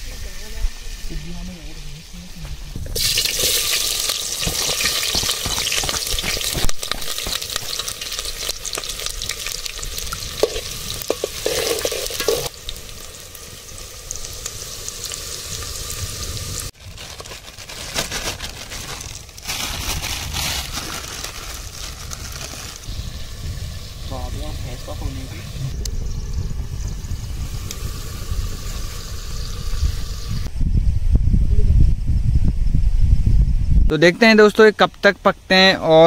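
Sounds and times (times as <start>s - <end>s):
onions sizzling in hot oil: 0.0s - 16.8s, 19.2s - 26.2s, 26.8s - 30.5s.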